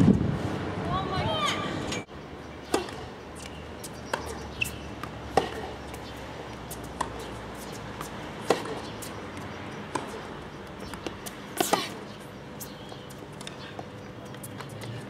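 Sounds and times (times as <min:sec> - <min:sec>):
tennis ball struck by rackets: 0:02.6 - 0:12.1.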